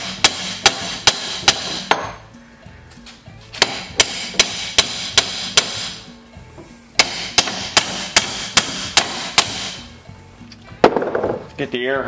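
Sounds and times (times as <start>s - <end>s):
hammer striking steel punch: 0.0s - 2.2s, 3.6s - 6.0s, 7.0s - 9.8s.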